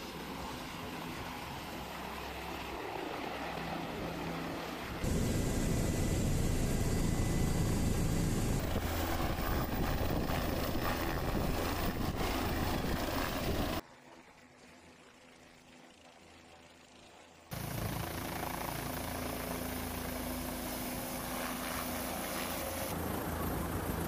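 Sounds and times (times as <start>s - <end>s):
helicopter engine and rotor: 0.0s - 24.0s
steady high whine: 4.9s - 13.8s.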